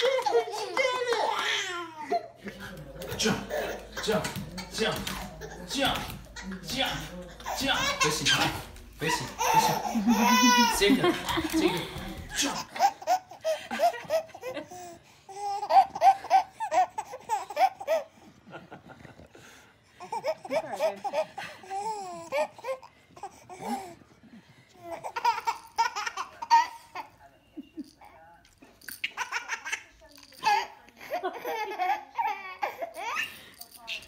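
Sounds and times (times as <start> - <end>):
baby laughing: 0.0 - 18.1, 24.8 - 27.1, 29.0 - 33.5.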